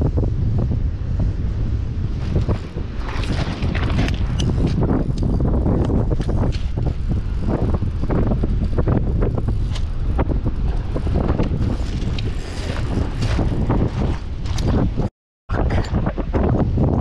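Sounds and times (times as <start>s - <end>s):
wind buffeting microphone: 0.0s - 17.0s
handling clicks and rustles: 2.2s - 7.0s.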